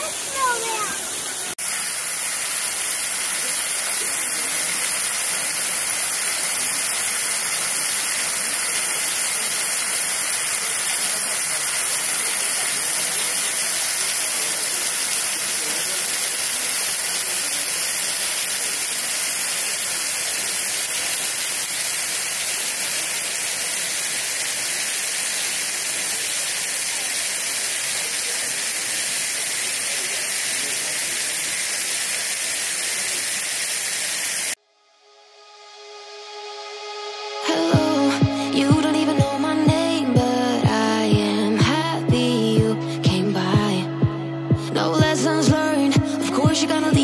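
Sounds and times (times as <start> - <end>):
waterfall splashing onto rocks: 0.0 - 34.6.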